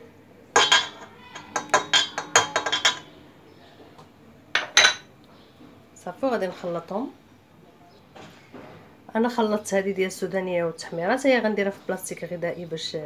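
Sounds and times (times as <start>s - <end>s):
metallic clinks on steel mixer bowl: 0.6s - 3.1s.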